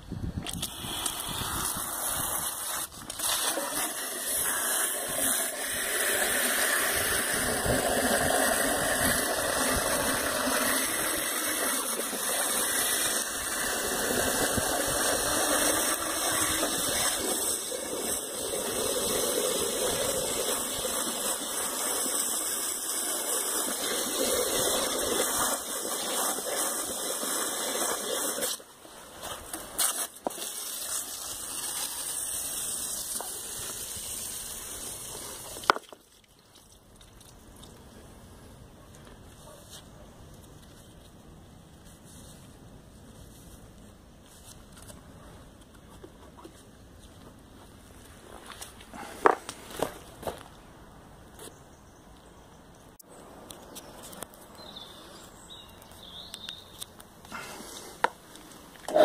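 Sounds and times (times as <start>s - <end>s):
faint hiss: 0.0s - 35.8s
hose spraying water: 0.4s - 37.4s.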